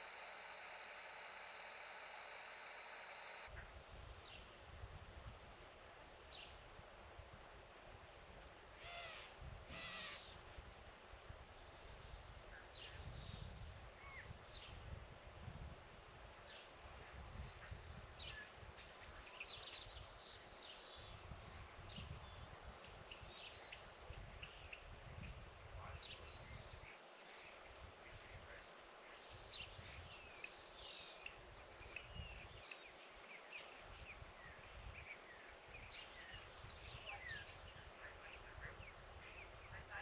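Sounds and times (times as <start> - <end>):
wind rumble on microphone: 3.5 - 5.7, 9.3 - 19.2, 21.0 - 26.9, 31.5 - 32.6.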